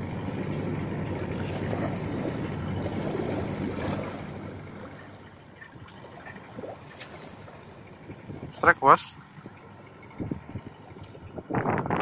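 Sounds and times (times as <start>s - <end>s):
steady low hum: 0.0s - 12.0s
water lapping: 0.0s - 12.0s
wind on microphone: 9.4s - 12.0s.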